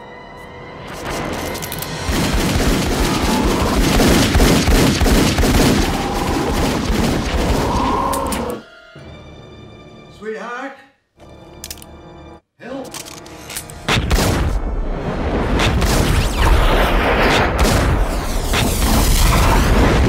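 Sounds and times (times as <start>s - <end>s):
rapid pistol gunfire: 2.0s - 7.7s.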